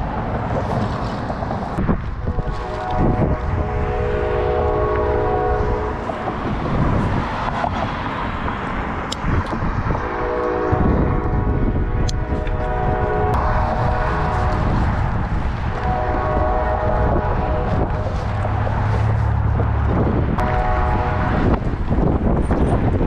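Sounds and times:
steady low rumble: 0.0 - 23.0
horn blasts: 2.2 - 6.3, 9.9 - 19.5, 20.2 - 22.1.

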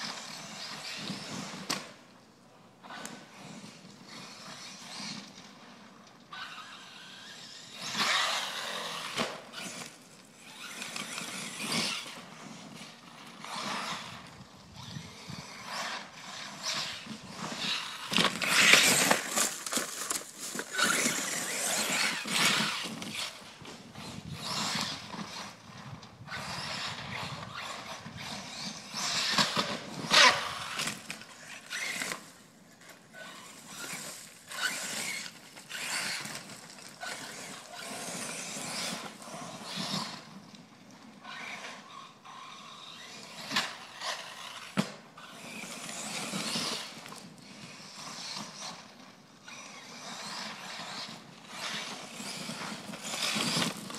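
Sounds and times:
toy truck motor running: 6.3 - 32.4, 33.2 - 40.4, 41.2 - 53.9.

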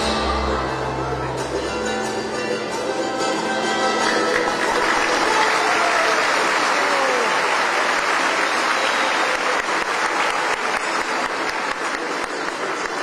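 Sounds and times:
audience applauding: 3.9 - 13.0.

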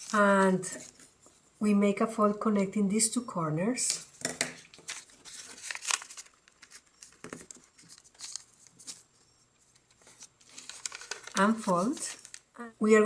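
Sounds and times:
paper rustling and crinkling: 4.6 - 12.6.

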